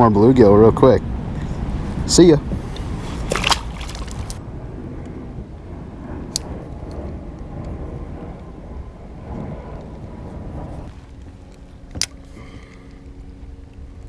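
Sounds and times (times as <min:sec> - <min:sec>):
wind rumble on microphone: 0:00.0 - 0:14.0
fish splashing into water: 0:03.1 - 0:04.4.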